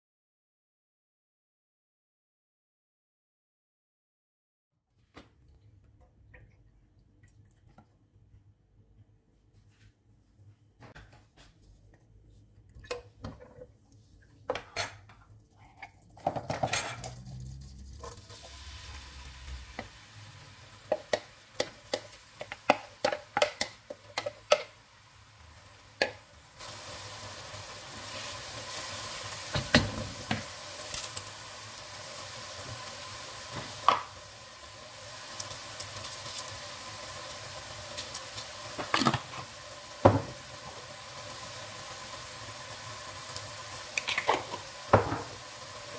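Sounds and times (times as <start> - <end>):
onions sizzling in oil: 16.5 - 45.9.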